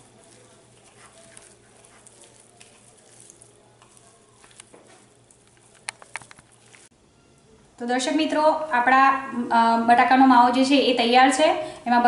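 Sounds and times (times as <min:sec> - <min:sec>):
soft squishing and crackling: 0:00.0 - 0:06.9.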